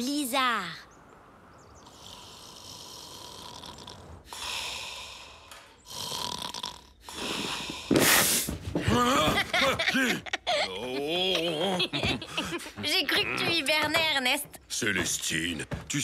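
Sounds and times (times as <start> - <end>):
cartoon bear snoring: 1.9 - 5.2, 5.8 - 7.9.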